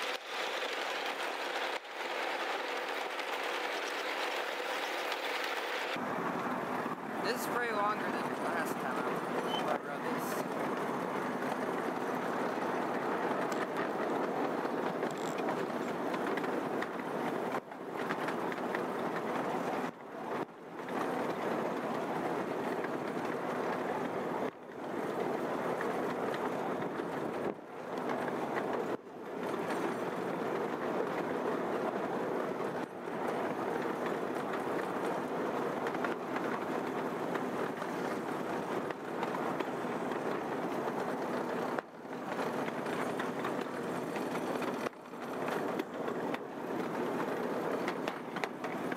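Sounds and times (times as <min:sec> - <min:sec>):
freight train rumbling past: 0:00.0 - 0:48.9.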